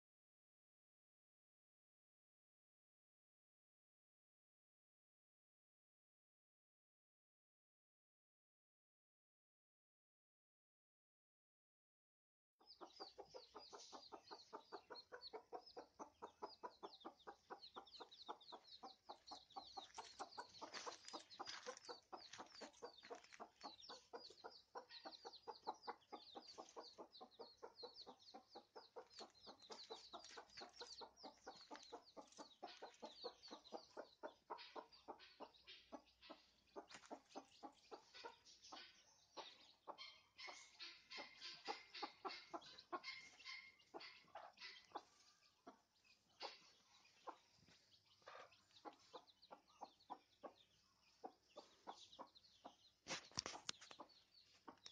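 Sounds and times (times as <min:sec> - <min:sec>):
baby chicks peeping: 0:12.6 - 0:54.9
hen clucking softly: 0:12.6 - 0:54.9.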